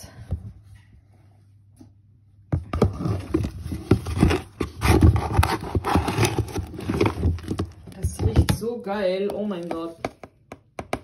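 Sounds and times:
powder detergent scraping out of box: 2.8 - 8.1.

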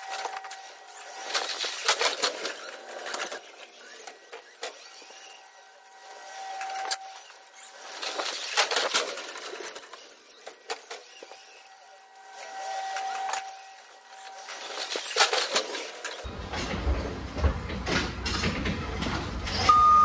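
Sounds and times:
forklift warning beeper: 0.1 - 1.0, 3.1 - 5.9, 6.5 - 7.7, 9.6 - 14.5.

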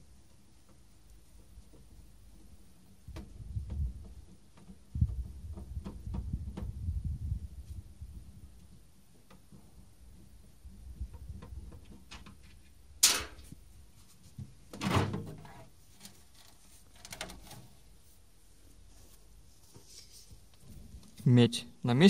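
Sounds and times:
sharp crack: 13.0 - 13.5.

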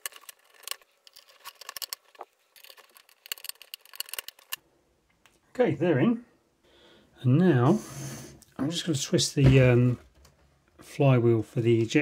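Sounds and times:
screwdriver clicks and ticks: 0.0 - 4.6.

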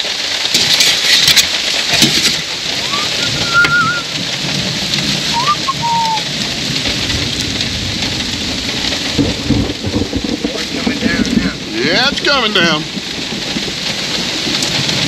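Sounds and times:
steady rain: 0.0 - 15.0
low rumble of thunder: 2.0 - 15.0
bird call: 2.8 - 4.1, 5.3 - 6.3.

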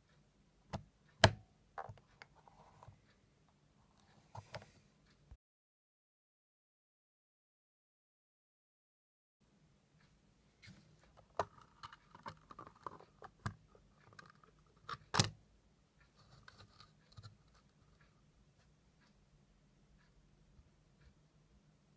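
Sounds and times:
plastic clicks and scrapes: 10.6 - 15.4, 16.2 - 18.1.

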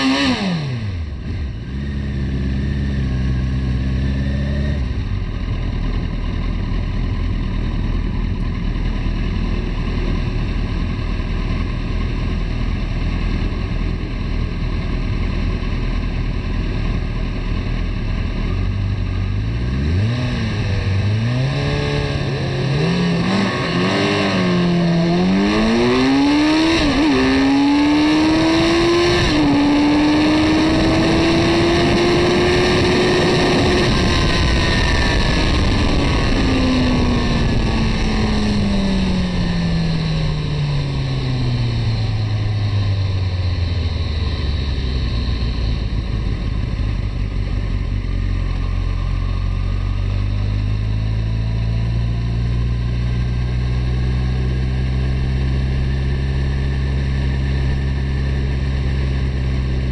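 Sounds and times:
motorcycle engine revving: 0.0 - 59.9
wind rush over microphone: 20.2 - 47.6.

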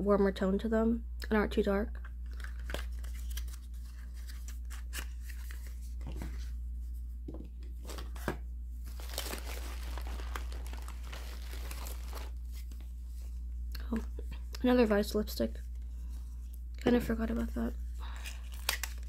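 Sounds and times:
plastic bag crinkling and rustling: 8.8 - 13.0.

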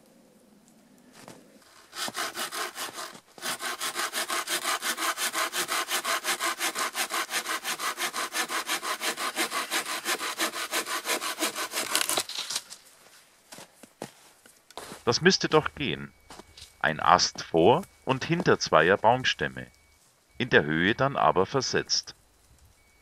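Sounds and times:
hand saw cutting a branch: 1.7 - 12.8.

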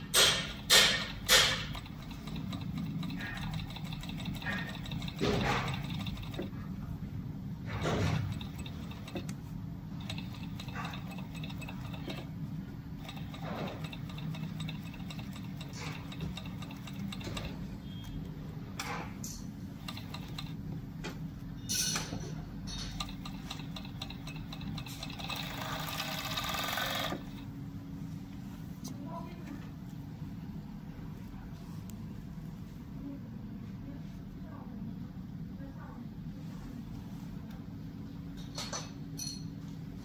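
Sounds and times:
short mechanical clicks: 0.1 - 6.5, 13.0 - 18.2
sewing machine running: 0.6 - 6.6, 7.7 - 17.7, 19.8 - 20.6, 22.8 - 27.5.

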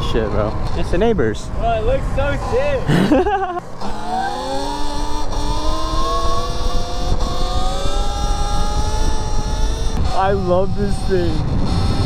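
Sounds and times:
wind: 0.0 - 12.0
electric motor whining: 3.7 - 12.0.

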